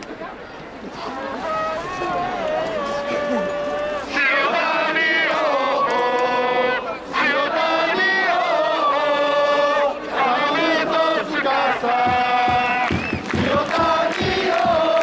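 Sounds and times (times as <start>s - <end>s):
crowd chanting a song: 1.6s - 15.0s.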